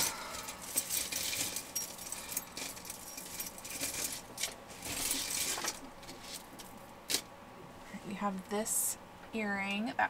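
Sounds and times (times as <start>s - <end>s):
jewelry clinking and jangling: 0.0s - 7.2s.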